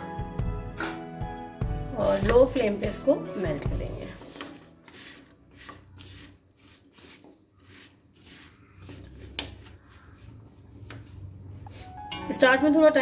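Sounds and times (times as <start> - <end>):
spatula scraping a wok: 3.6 - 10.4.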